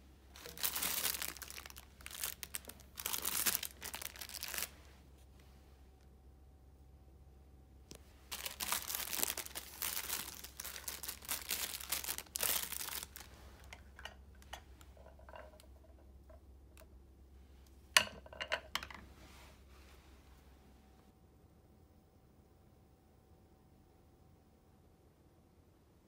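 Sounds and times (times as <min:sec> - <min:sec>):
plastic wrapping crinkling: 0:00.3 - 0:04.9, 0:08.0 - 0:15.7.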